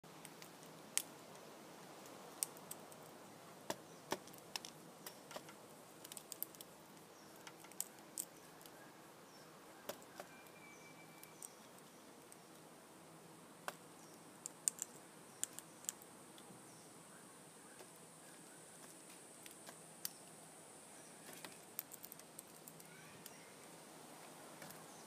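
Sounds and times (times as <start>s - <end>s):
parrot cracking seeds: 2.0s - 3.1s, 4.1s - 8.8s, 14.4s - 16.1s, 21.2s - 23.4s
faint bird chirps: 7.1s - 12.6s, 16.6s - 18.9s, 20.1s - 21.6s, 22.5s - 23.7s.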